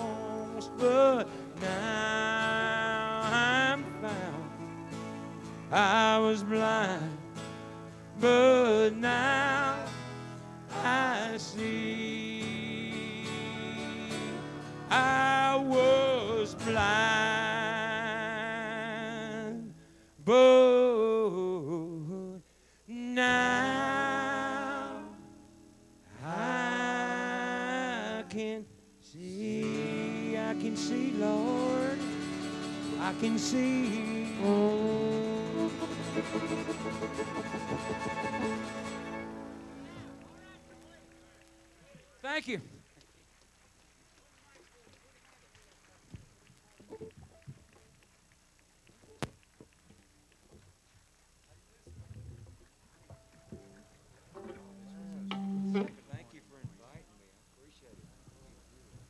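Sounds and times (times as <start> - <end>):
country band playing slow melody: 0.0 - 42.2, 52.5 - 56.9
sliding wavering lead notes: 35.1 - 39.8, 54.4 - 56.2.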